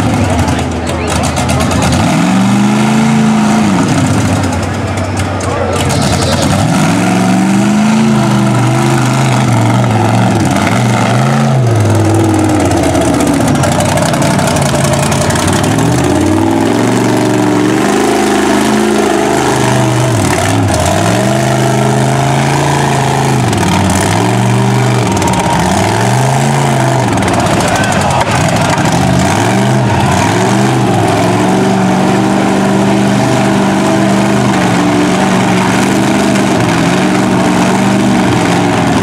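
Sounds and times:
truck engine revving: 0:00.0 - 0:39.0.

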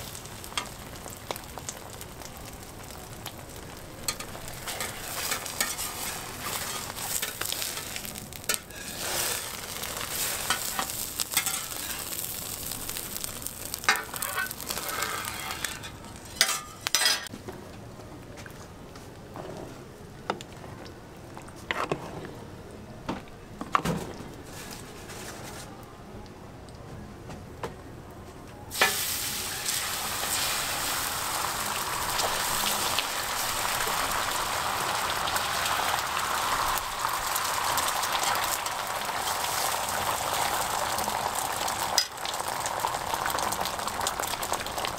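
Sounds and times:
egg sizzling on griddle: 0:00.0 - 0:17.3, 0:28.7 - 0:44.9
metal spatula scraping: 0:04.1 - 0:12.2, 0:13.8 - 0:17.3.

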